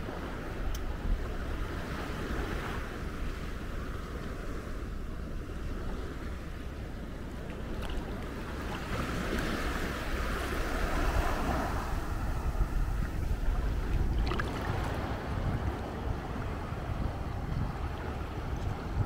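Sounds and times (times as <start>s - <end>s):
small waves washing ashore: 0.0s - 19.0s
wind rumble on microphone: 0.0s - 19.0s.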